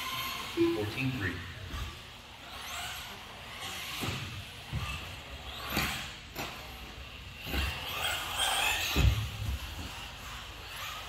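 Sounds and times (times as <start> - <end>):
electric toy car motor whine: 0.0 - 11.0.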